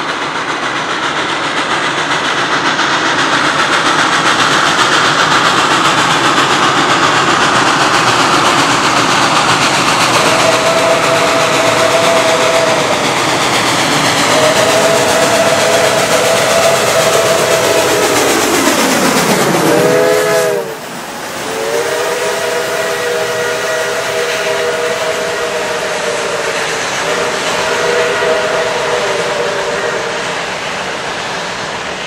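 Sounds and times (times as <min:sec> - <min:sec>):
steam hissing: 0:00.0 - 0:32.0
steam locomotive chime whistle: 0:10.1 - 0:13.4, 0:14.2 - 0:31.0.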